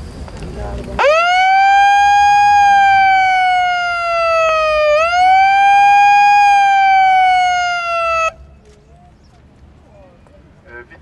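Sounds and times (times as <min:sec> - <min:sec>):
megaphone siren wailing: 0:01.0 - 0:08.4.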